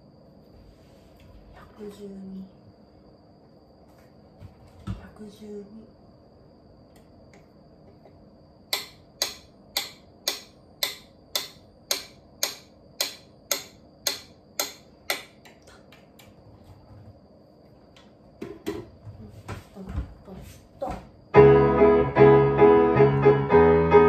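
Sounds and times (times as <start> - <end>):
metronome ticking: 8.7 - 15.4.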